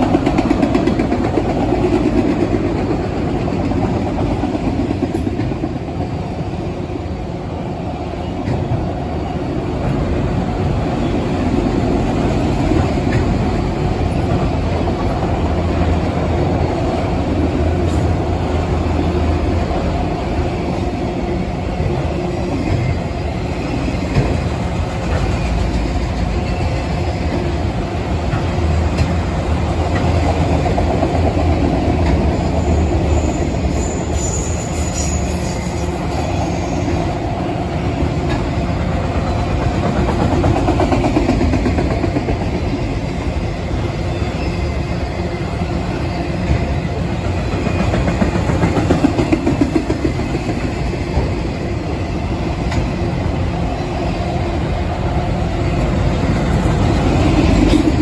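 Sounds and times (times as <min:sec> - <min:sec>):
train wheels rumbling and clattering: 0:00.0 - 0:58.0
wheel squeal: 0:32.4 - 0:37.1.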